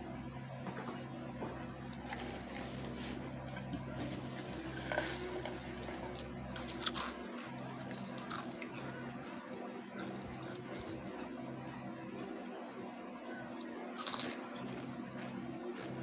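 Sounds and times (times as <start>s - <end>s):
low steady hum: 0.0s - 16.0s
potato crisps crunching: 1.9s - 11.4s, 13.5s - 16.0s.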